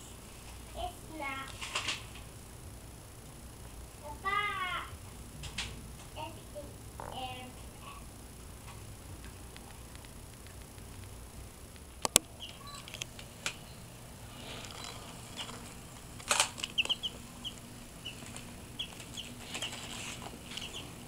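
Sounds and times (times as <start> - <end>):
sharp clicks and taps: 11.7 - 13.6
chicks peeping: 12.1 - 21.0.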